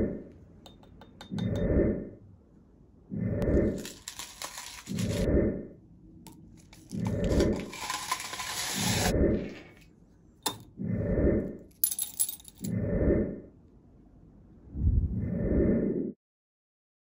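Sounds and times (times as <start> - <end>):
low rushing swells: 14.7 - 16.1.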